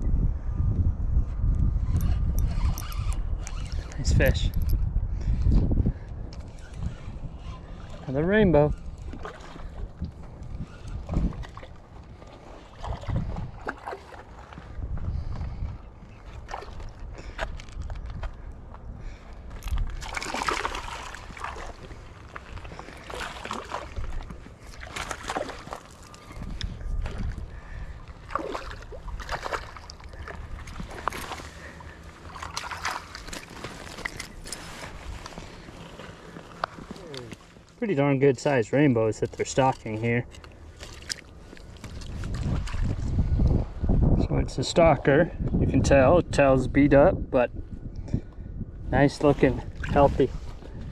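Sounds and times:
wind rumbling on microphone: 0.0 - 37.7, 38.9 - 50.9
water sloshing: 7.0 - 14.9, 19.6 - 37.8, 39.1 - 43.2
fish splashing and thrashing: 8.8 - 15.6, 16.2 - 18.0, 19.6 - 37.8, 39.6 - 43.2
light splashing: 19.8 - 26.4, 28.0 - 35.6.

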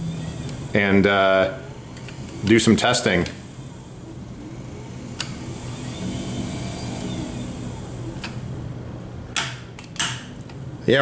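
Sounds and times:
motors whirring: 0.0 - 8.7
steady low hum: 0.0 - 11.0.

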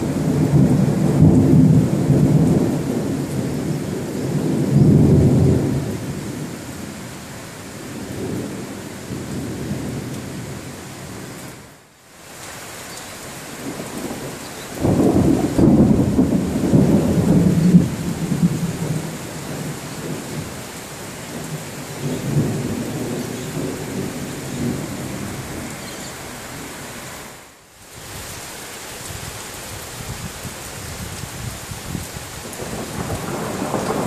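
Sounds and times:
thunder rumbling: 0.0 - 6.9, 13.6 - 25.9, 31.0 - 34.0
steady rain hissing: 0.0 - 34.0.

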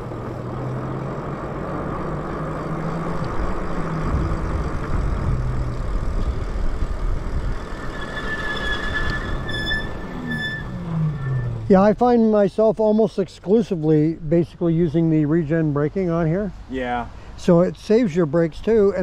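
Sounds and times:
wind and road noise: 0.0 - 19.0
high steady whine: 1.8 - 11.6.

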